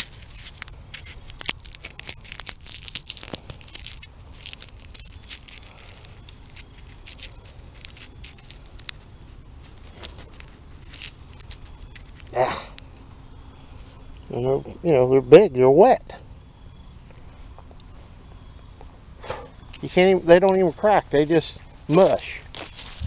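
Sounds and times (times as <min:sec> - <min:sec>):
pod crackling between fingers: 0:00.0 - 0:13.1, 0:21.9 - 0:23.0.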